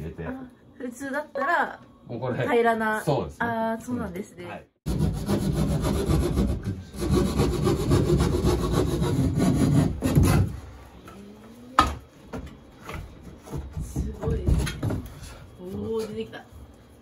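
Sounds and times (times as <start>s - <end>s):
saw cutting wood: 4.9s - 10.5s.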